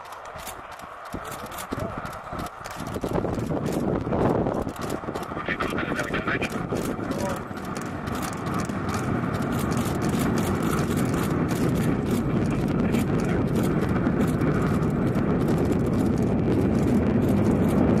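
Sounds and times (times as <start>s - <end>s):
distant rocket engine roar: 0.0s - 18.0s.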